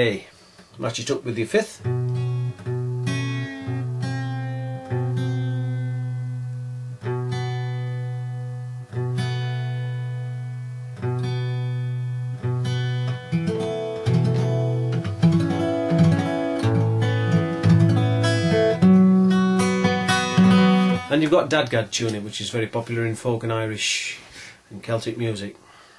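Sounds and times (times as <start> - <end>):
acoustic guitar strings plucked: 1.8 - 22.2.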